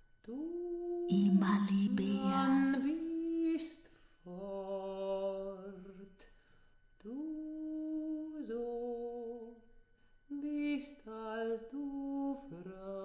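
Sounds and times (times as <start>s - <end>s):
person singing long notes: 0.2s - 6.1s.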